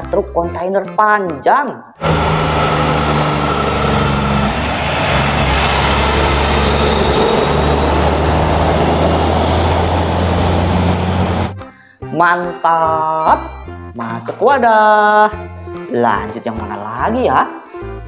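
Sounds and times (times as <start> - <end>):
diesel truck engine drone: 2.0 - 11.6
tyre and road noise: 2.0 - 11.6.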